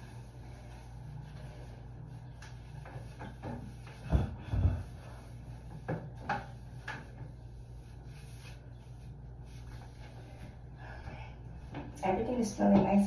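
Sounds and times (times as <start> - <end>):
wipe rubbing plastic toilet seat: 0.0 - 11.0
toilet seat knocking: 3.2 - 5.0.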